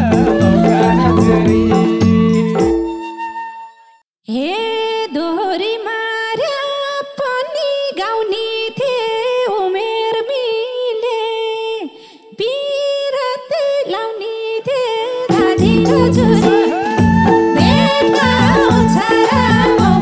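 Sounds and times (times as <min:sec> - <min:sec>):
band instruments: 0:00.0 - 0:03.4, 0:15.3 - 0:20.0
woman singing unaccompanied: 0:04.3 - 0:20.0.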